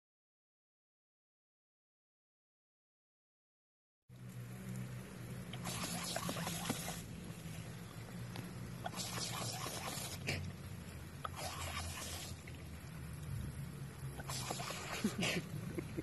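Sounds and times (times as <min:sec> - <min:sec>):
steady low hum: 0:04.1 - 0:16.0
dog panting: 0:05.6 - 0:07.0, 0:08.8 - 0:10.5.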